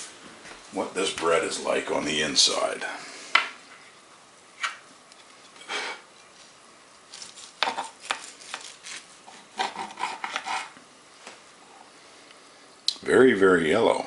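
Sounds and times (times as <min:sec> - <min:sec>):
knife sawing through bread: 0:07.6 - 0:10.8.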